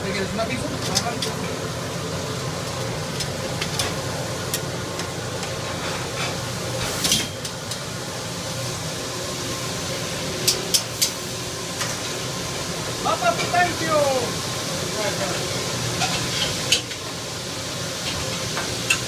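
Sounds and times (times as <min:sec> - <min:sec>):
ventilation and gas burners rushing: 0:00.0 - 0:19.0
metal pans and utensils clinking: 0:15.9 - 0:17.0.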